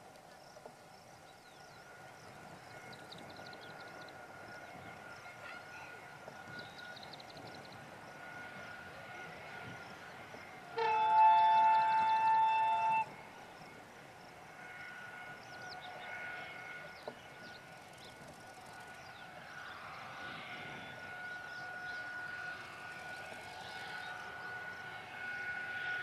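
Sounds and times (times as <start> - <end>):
faint high whine: 0.0 - 26.0
locomotive horn: 10.7 - 13.2.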